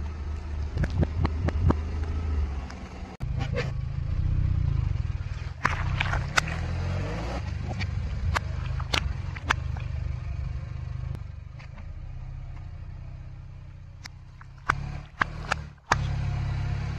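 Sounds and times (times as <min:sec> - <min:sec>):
car engine idling: 0:00.0 - 0:16.9
water balloons popping: 0:05.4 - 0:10.0, 0:14.0 - 0:16.2.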